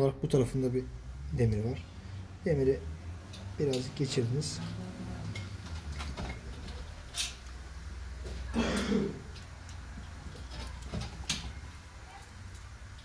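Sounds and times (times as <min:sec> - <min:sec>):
steady low hum: 0:00.0 - 0:13.0
metal parts clicking: 0:05.4 - 0:07.5.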